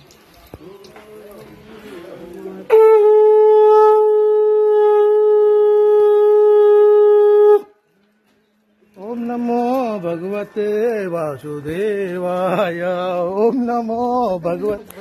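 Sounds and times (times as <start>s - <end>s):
conch shell blown: 2.7s - 7.8s.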